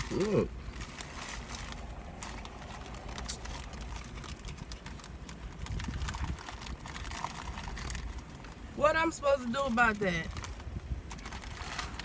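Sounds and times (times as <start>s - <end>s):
person chewing: 0.0s - 4.9s
food wrapper rustling: 0.0s - 8.7s, 9.7s - 12.0s
low hum in car cabin: 0.0s - 12.0s.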